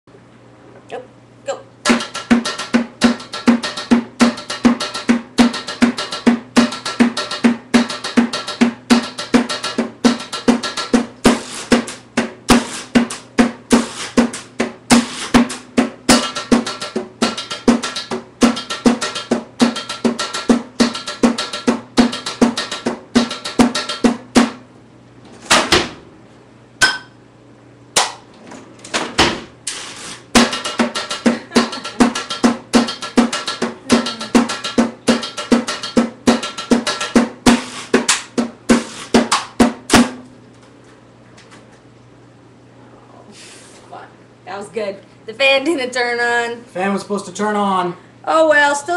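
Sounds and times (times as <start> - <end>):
stick drumming on kitchen pots: 1.8 - 24.6, 30.4 - 40.2.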